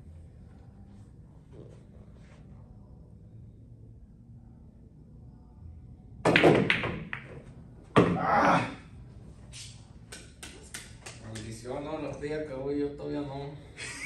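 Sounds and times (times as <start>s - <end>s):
pool balls clacking: 6.3s - 8.2s.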